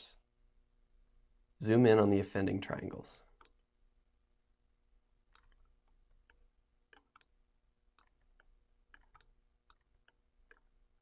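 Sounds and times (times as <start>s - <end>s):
faint steady hum: 0.0s - 11.0s
computer mouse clicking: 3.4s - 3.6s, 5.3s - 10.8s.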